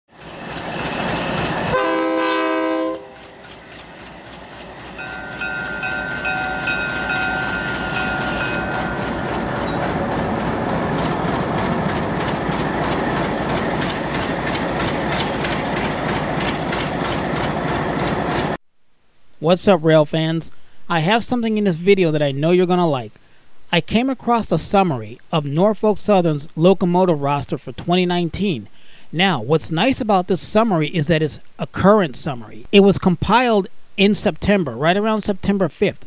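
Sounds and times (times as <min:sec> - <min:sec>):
train rumbling past: 0:00.1 - 0:18.6
locomotive horn: 0:01.6 - 0:03.4, 0:05.0 - 0:09.8
quieter train horn: 0:01.6 - 0:03.5, 0:05.0 - 0:09.8
wheel clatter on rails: 0:03.0 - 0:18.6.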